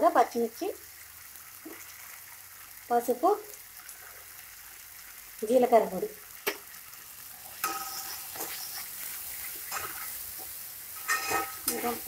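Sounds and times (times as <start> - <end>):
sauce sizzling in oil: 0.0 - 12.0
spatula scraping steel pan: 7.5 - 10.2, 10.9 - 12.0.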